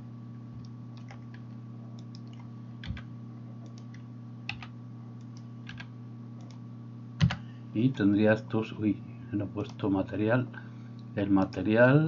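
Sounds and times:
low electrical hum: 0:00.0 - 0:12.0
keyboard and mouse clicks: 0:00.6 - 0:06.6.

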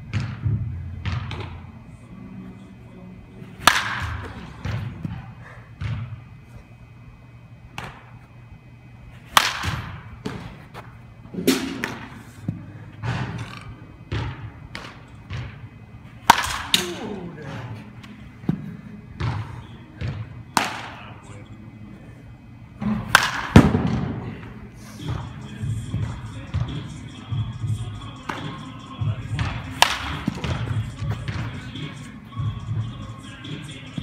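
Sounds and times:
baseball bat cracking ball: 0:03.6 - 0:05.2, 0:07.8 - 0:08.1, 0:09.2 - 0:10.6, 0:11.4 - 0:12.2, 0:13.0 - 0:15.6, 0:16.2 - 0:17.4, 0:19.2 - 0:21.3, 0:22.8 - 0:25.4, 0:28.2 - 0:32.2.

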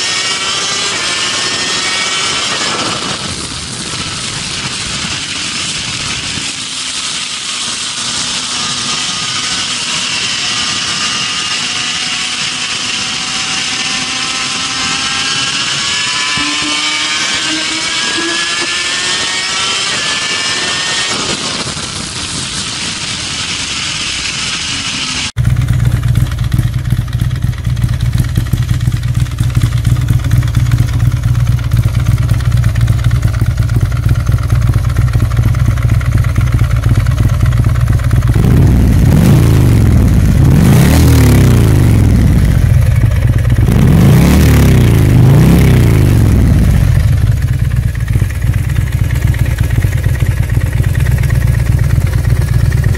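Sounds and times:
motorcycle engine accelerating: 0:00.0 - 0:52.9
motorcycle engine running steadily: 0:00.0 - 0:52.9
wind rush: 0:00.4 - 0:10.2.

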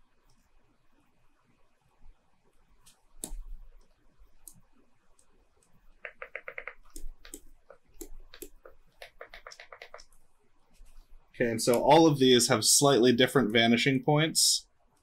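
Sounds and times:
computer mouse clicks: 0:02.8 - 0:10.2.

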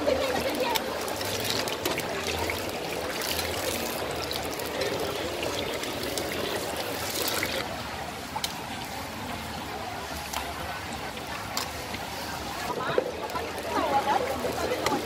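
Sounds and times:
hot oil sizzling and crackling: 0:00.0 - 0:09.1.

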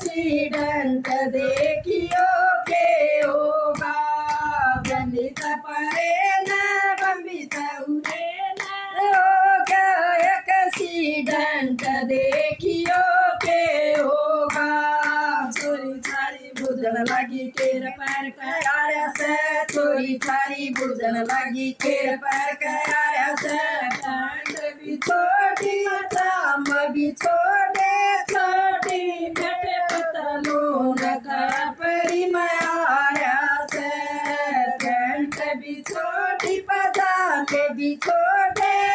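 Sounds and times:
hands clapping: 0:00.0 - 0:38.9
women singing folk song: 0:00.0 - 0:38.9.

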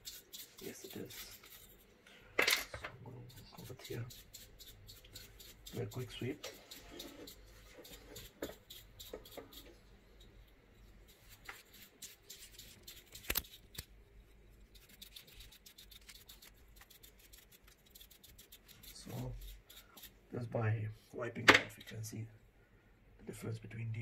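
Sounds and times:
paintbrush scratching fan blades: 0:00.0 - 0:02.0, 0:03.0 - 0:20.3.

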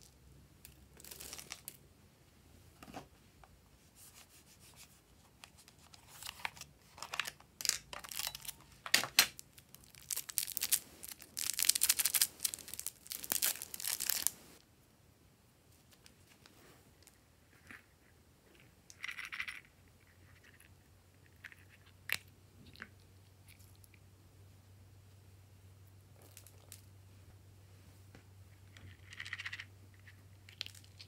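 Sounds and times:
plastic packet crinkling and tearing: 0:06.1 - 0:14.4.

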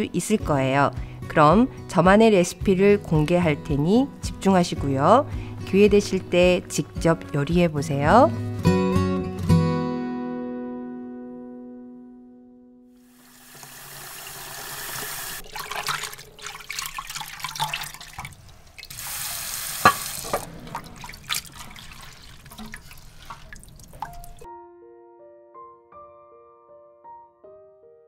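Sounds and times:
water splashing and dripping: 0:13.1 - 0:24.5
piano-like music: 0:24.0 - 0:28.0.

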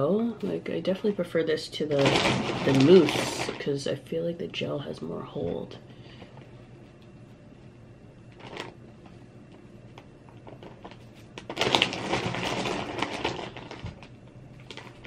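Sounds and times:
plastic rustling and crackling: 0:01.8 - 0:04.0, 0:08.3 - 0:15.0.

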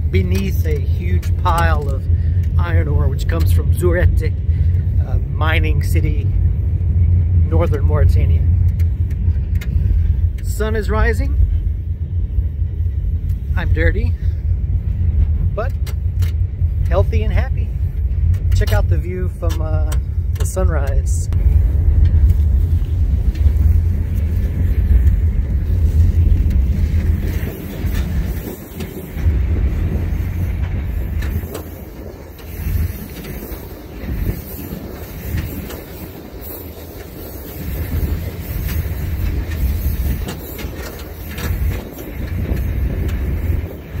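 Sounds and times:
train rumbling: 0:00.0 - 0:44.0.

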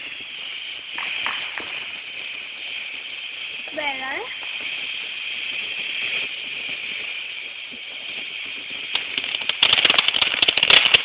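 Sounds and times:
firework fountain hissing: 0:00.0 - 0:11.0
rapid crackling pops: 0:00.0 - 0:11.0.

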